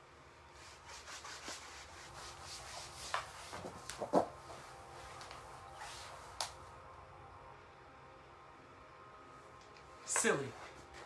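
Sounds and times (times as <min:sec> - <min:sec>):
body brushing on wooden floor: 0:00.6 - 0:06.6.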